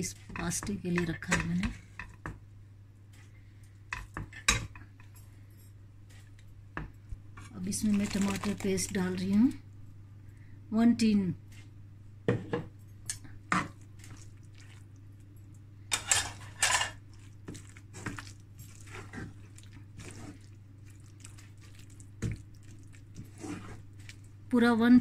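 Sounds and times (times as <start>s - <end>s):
spatula scraping frying pan: 15.9s - 20.5s, 23.1s - 24.2s.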